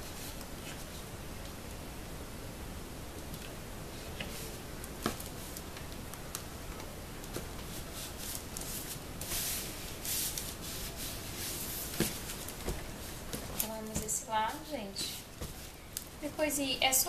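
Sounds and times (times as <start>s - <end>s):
hands rubbing foam sheet: 7.6s - 15.8s.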